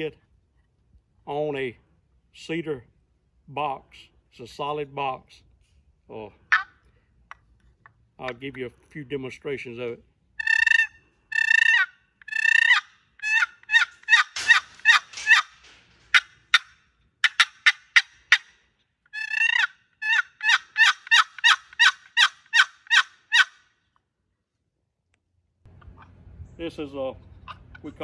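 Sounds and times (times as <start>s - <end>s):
turkey box call yelps: 6.5s - 6.8s, 10.4s - 23.7s.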